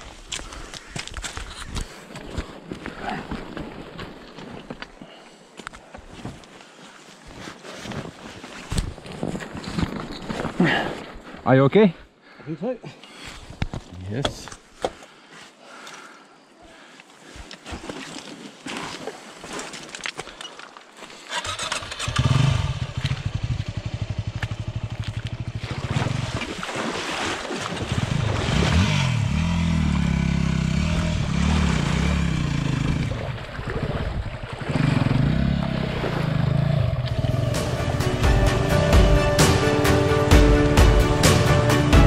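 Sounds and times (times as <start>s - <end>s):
motorcycle engine revving: 21.3s - 25.6s, 28.0s - 33.3s, 34.6s - 38.4s.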